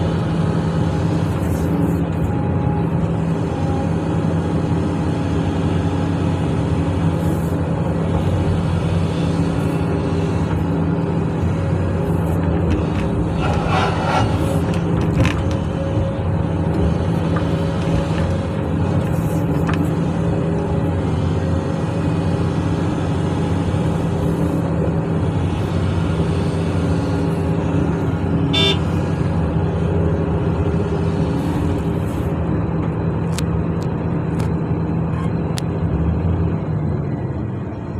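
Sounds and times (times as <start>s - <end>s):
heavy diesel engines running: 0.0s - 37.9s
short horn toot: 28.6s - 28.9s.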